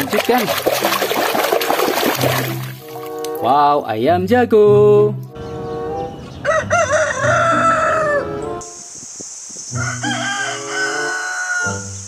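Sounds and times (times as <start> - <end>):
rooster crowing: 6.4 - 8.6, 9.7 - 12.0
steady hiss: 8.6 - 11.1.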